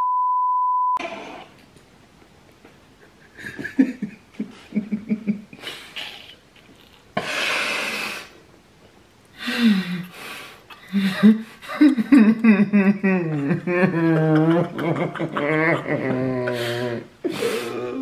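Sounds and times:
steady pure beep: 0.0 - 1.0
men laughing breathily: 2.9 - 6.4, 10.7 - 17.7
burst of hiss: 7.2 - 8.4.

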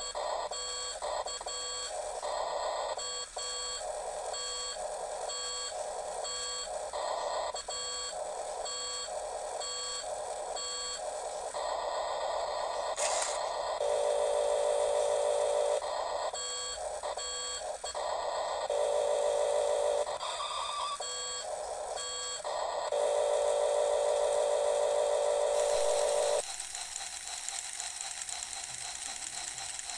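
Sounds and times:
toy electronic buzzing tones: 0.0 - 29.9
toy gear motor whirring: 12.9 - 13.6, 25.6 - 29.9.

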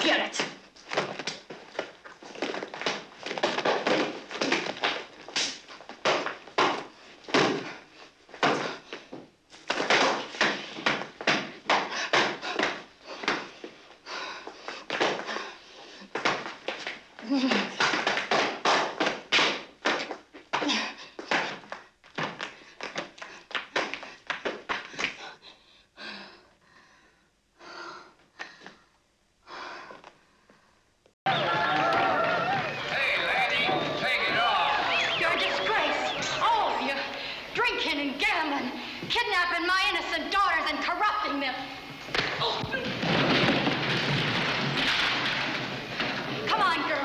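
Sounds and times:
woman gasping breaths: 11.9 - 16.2, 24.9 - 30.8, 37.1 - 37.6, 38.8 - 39.1.

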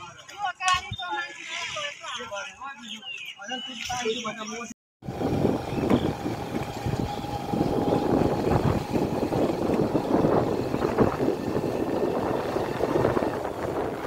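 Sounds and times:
engine and road noise: 5.0 - 14.0
wind buffeting microphone: 5.0 - 14.0.

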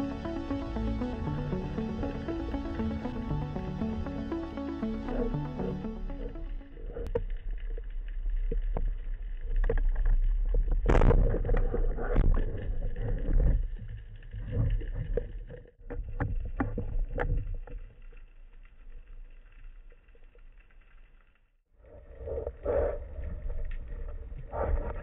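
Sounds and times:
low underwater rumble: 0.0 - 21.2, 21.9 - 25.0
underwater knocks and clicks: 7.1 - 18.1.

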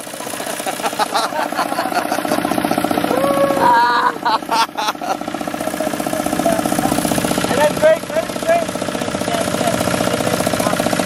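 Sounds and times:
diesel engine running: 0.0 - 11.0
person calling out: 3.1 - 4.2.

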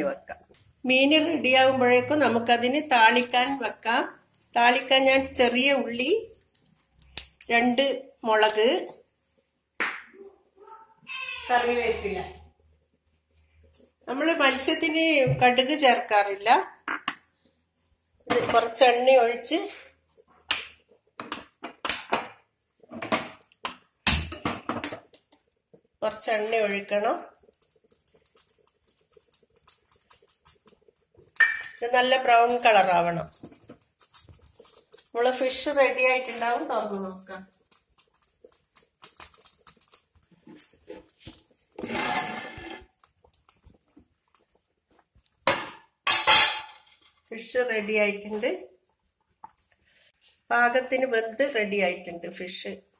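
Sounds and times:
frying in oil crackling: 2.1 - 9.2, 18.2 - 50.2.

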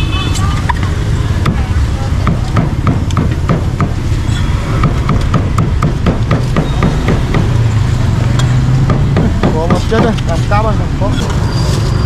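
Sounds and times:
cleaver chopping meat on wood: 2.2 - 4.0, 4.7 - 7.6, 8.8 - 10.3.

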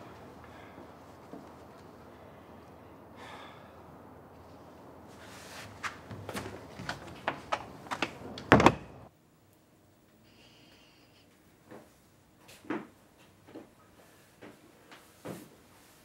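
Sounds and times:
door closing thud: 8.4 - 9.1.

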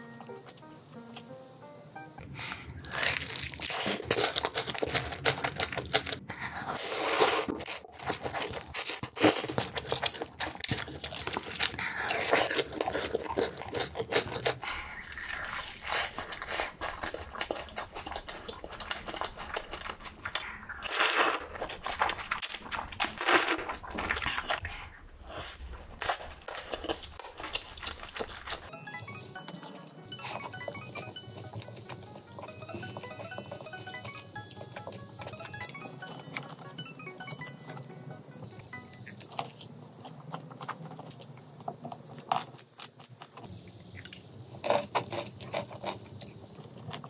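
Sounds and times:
wet chewing: 2.2 - 47.0
noodles slurped: 2.5 - 28.7
crunchy bites into fried food: 2.8 - 24.6.

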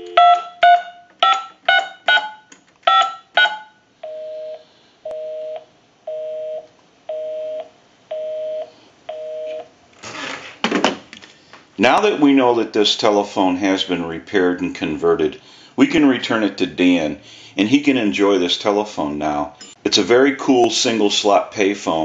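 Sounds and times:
keypad two-tone beeps: 0.0 - 3.7
busy signal buzz: 0.0 - 9.6.

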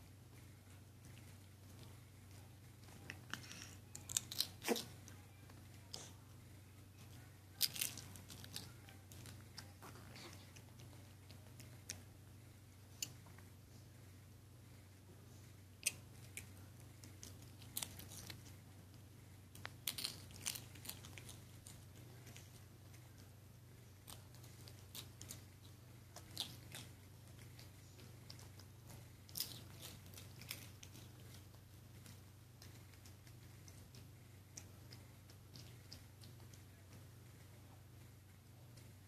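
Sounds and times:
low steady hum: 0.0 - 39.0
animals play-biting clicks and snaps: 15.8 - 18.6, 19.5 - 23.4, 24.0 - 37.1.

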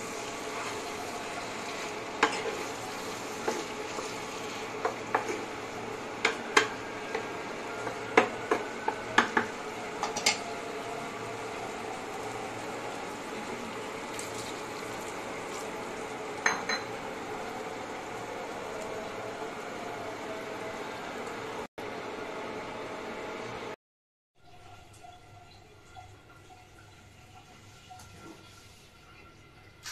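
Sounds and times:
food sizzling in pan: 0.0 - 21.7
spatula knocking frying pan: 7.8 - 10.3.

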